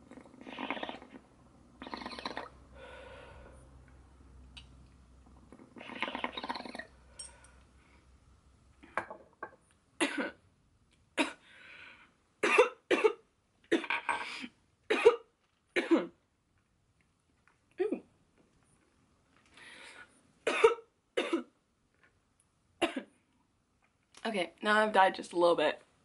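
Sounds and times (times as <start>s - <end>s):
woman breathing out: 2.7s - 3.6s
woman coughing: 10.0s - 10.4s, 12.4s - 14.0s, 14.9s - 16.1s, 20.5s - 21.5s, 22.8s - 23.1s.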